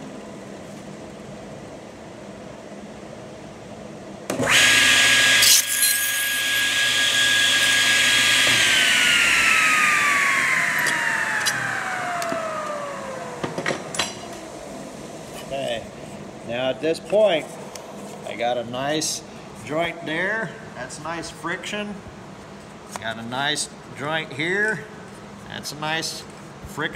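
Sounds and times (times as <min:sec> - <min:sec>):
table saw whining: 0:04.4 - 0:13.9.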